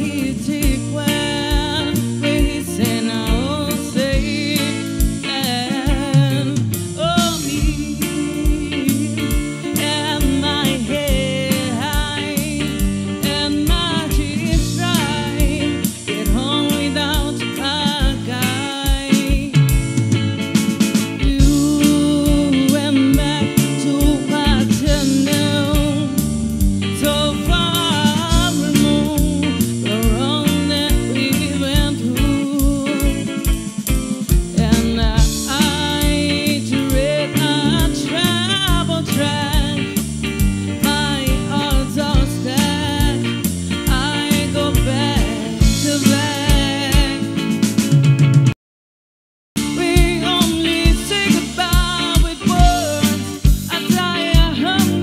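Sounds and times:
woman singing: 0.0 - 19.8, 20.9 - 47.6, 49.6 - 55.0
drum kit beat: 0.0 - 48.6, 49.6 - 55.0
electric bass: 0.0 - 48.6, 49.6 - 55.0
electric guitar: 0.0 - 48.6, 49.6 - 55.0.

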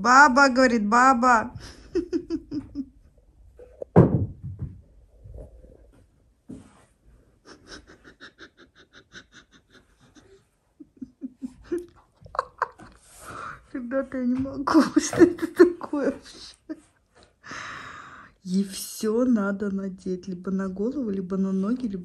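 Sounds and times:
breathy laughter: 7.4 - 13.5.

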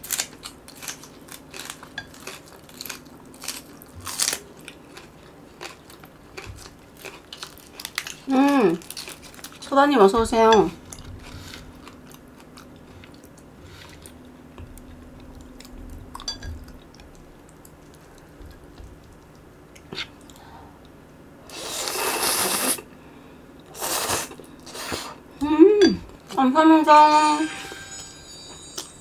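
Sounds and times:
chewing and crunching: 0.0 - 9.7, 10.8 - 21.0
slurping noodles: 21.5 - 22.8, 23.8 - 25.2.

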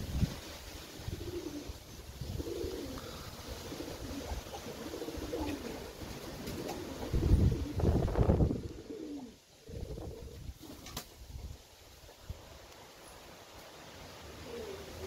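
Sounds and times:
wind rumbling on microphone: 0.0 - 5.5, 6.6 - 11.6
pigeons cooing: 1.0 - 10.8, 14.3 - 15.0.

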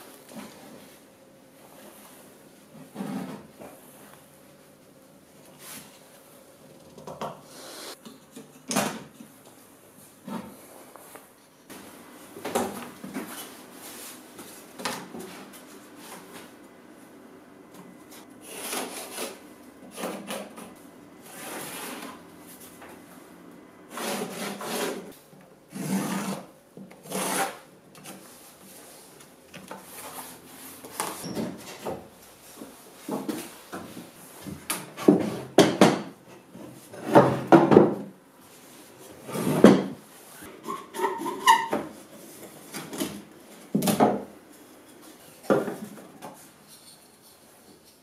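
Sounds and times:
scraping and rubbing wood: 23.9 - 25.1
knife cutting wood veneer: 27.1 - 27.6.

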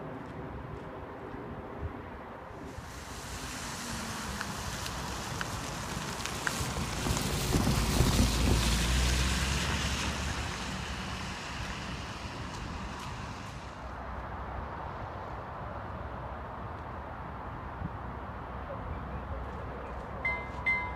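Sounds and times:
wind buffeting microphone: 0.5 - 14.2
car driving past: 2.6 - 13.9.

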